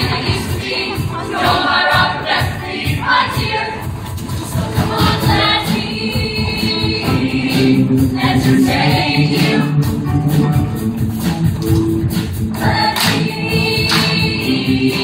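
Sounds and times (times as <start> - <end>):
choir singing harmonies: 0.0 - 9.9, 12.5 - 15.0
live band playing: 3.9 - 14.6.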